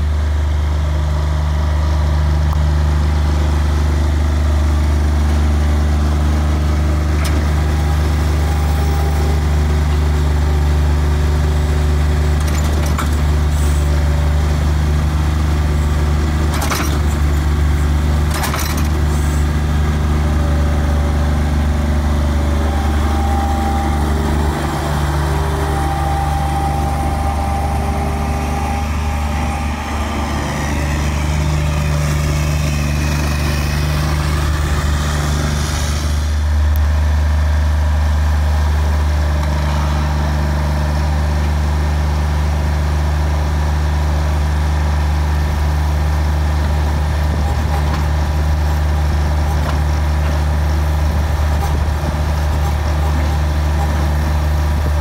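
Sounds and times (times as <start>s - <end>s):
diesel engine running: 0.0s - 55.0s
high whine: 17.2s - 42.8s
rushing noise: 18.4s - 37.9s.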